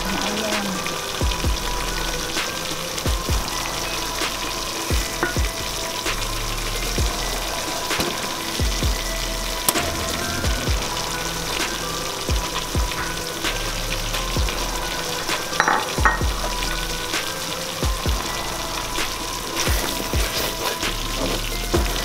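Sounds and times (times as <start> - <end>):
sauce sizzling in a pot: 0.0 - 22.0.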